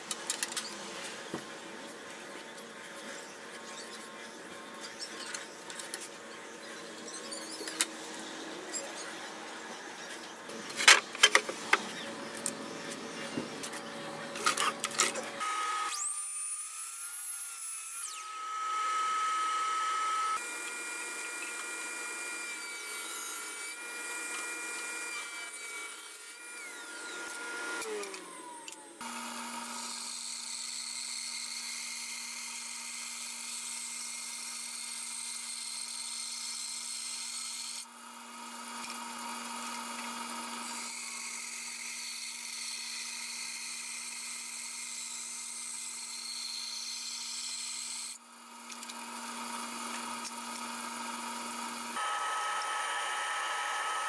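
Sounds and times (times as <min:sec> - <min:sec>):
miter saw whining: 0:15.4 - 0:32.6, 0:48.1 - 0:54.0
bandsaw humming: 0:51.8 - 0:54.0.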